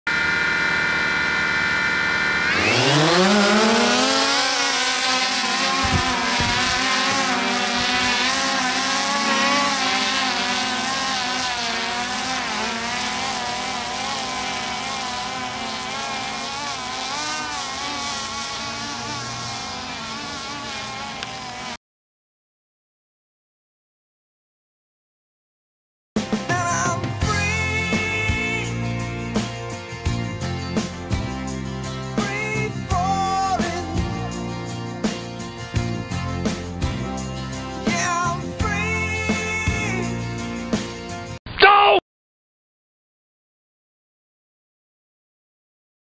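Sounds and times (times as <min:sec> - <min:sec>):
drone propellers whining: 0:00.1 - 0:21.8.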